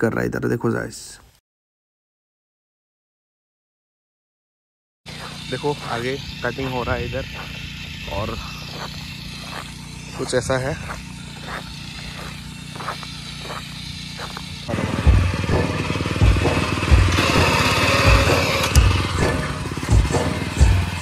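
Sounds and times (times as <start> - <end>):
small petrol engine running: 5.1 - 21.0.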